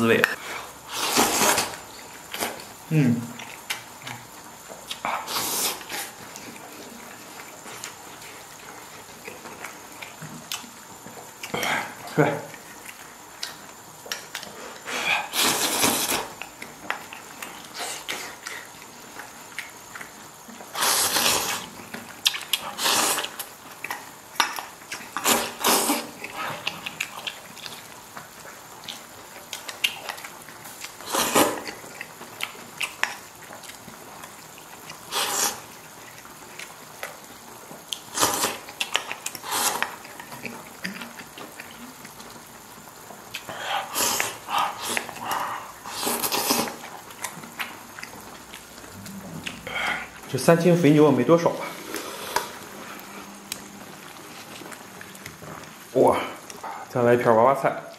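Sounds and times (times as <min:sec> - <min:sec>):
person chewing: 0:00.2 - 0:50.8, 0:51.6 - 0:56.9
person slurping noodles: 0:00.6 - 0:01.8, 0:05.0 - 0:06.2, 0:14.7 - 0:16.4, 0:20.7 - 0:21.7, 0:22.6 - 0:23.4, 0:25.1 - 0:26.6, 0:31.0 - 0:31.7, 0:35.0 - 0:35.7, 0:38.1 - 0:38.7, 0:39.4 - 0:40.0, 0:43.4 - 0:46.9, 0:51.7 - 0:53.4.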